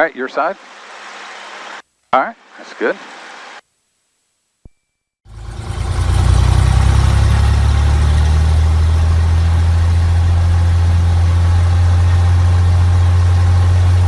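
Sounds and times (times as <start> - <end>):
aircraft engine droning: 5.3 - 14.0.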